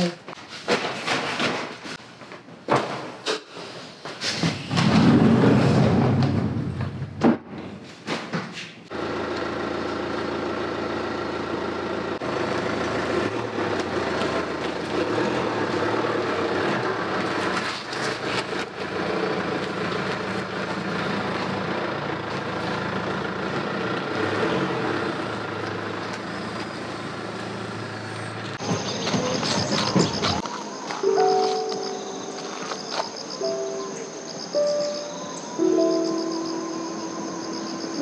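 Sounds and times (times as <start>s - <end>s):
minivan engine running: 8.9s - 38.0s.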